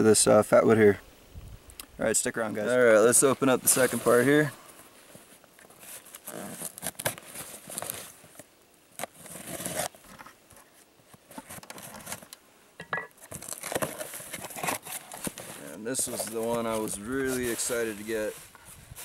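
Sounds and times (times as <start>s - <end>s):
tape tearing: 5.8s - 8.2s, 9.0s - 10.4s, 13.2s - 17.8s.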